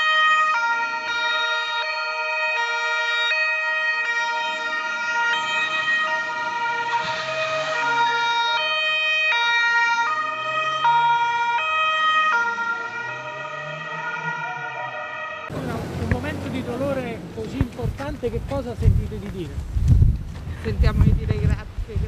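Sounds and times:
two-tone police siren: 0.0 - 15.7.

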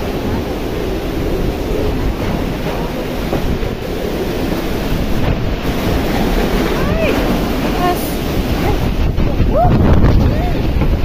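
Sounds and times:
gusts buffeting microphone: 0.0 - 11.0
strong wind with rain: 0.0 - 11.0.

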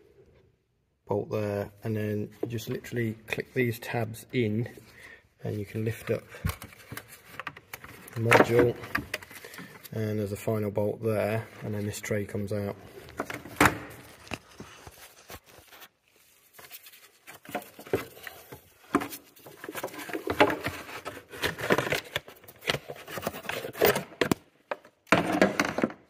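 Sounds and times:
clicks and knocks of parts handled: 6.0 - 10.0.

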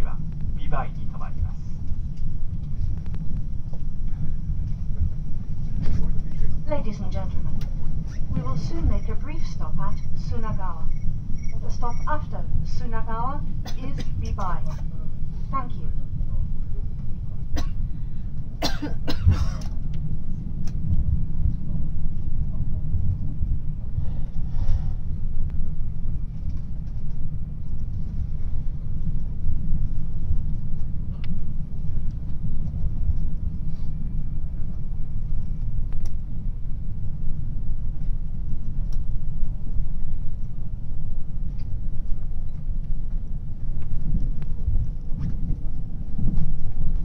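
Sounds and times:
train wheels rumbling on rails: 0.0 - 47.0.

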